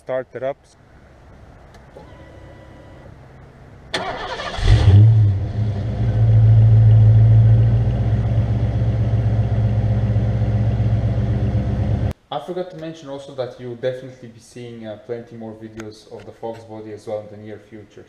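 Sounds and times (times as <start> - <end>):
car engine starting and idling: 1.7 - 12.1.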